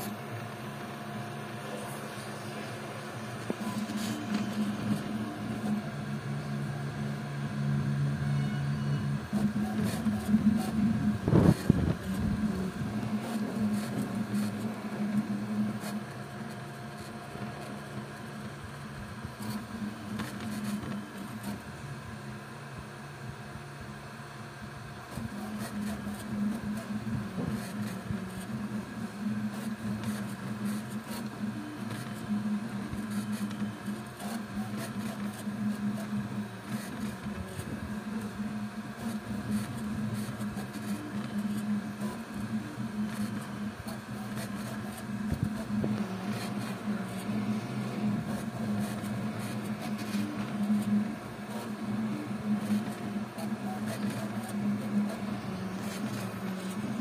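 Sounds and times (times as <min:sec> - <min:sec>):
stepper motors humming: 0:00.0 - 0:22.5
steady whir: 0:00.0 - 0:57.0.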